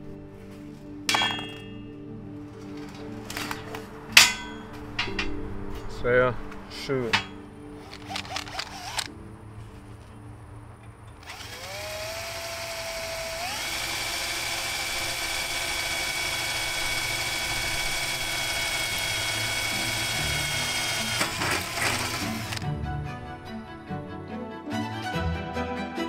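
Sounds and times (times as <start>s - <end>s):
power tool motor whining: 7.8s - 9.2s, 11.2s - 22.7s.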